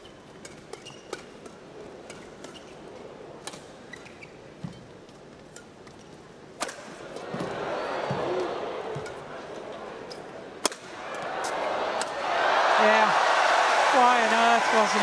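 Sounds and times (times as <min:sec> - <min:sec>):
low arena background: 0:00.0 - 0:15.0
shuttlecock struck by rackets: 0:10.6 - 0:11.0.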